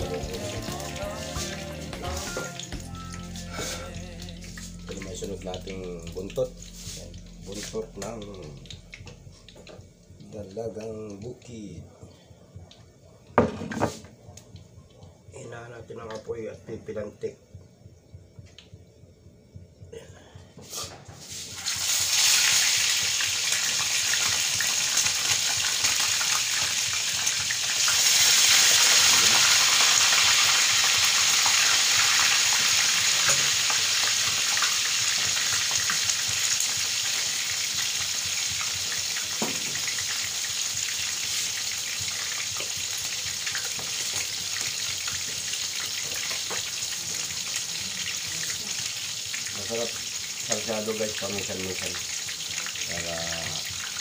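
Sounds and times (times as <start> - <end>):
fish sizzling in hot oil: 0.0 - 11.4, 20.7 - 54.0.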